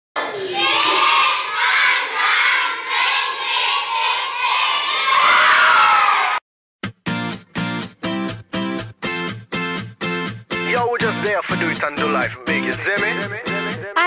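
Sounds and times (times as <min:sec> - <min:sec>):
children cheering: 0:00.2 - 0:06.4
children shouting in unison: 0:00.2 - 0:06.4.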